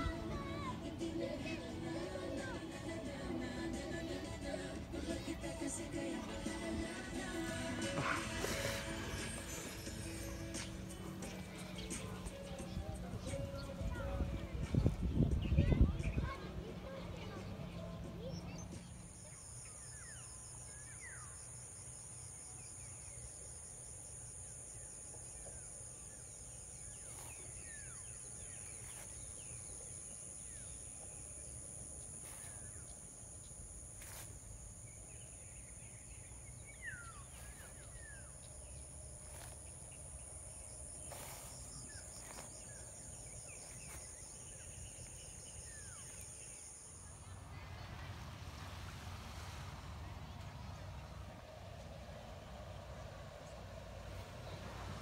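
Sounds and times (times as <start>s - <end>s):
insects trilling: 18.5s - 47.4s.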